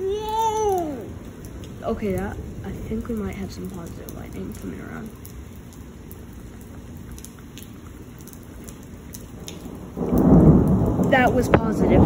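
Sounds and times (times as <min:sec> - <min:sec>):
thunder rumble: 0:00.0 - 0:06.3, 0:08.6 - 0:12.0
faint drips: 0:00.0 - 0:12.0
steady rain: 0:00.0 - 0:12.0.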